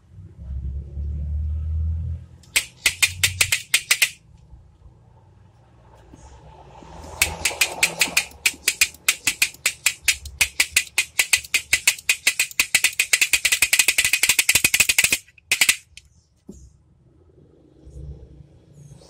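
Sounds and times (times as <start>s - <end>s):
wooden toy pistol clicking rattle: 2.4s - 4.2s, 7.0s - 16.1s.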